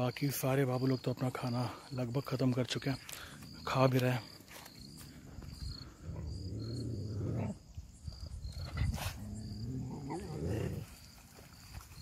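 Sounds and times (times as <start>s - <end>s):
dog growling low: 5.8s - 7.7s, 8.7s - 11.0s.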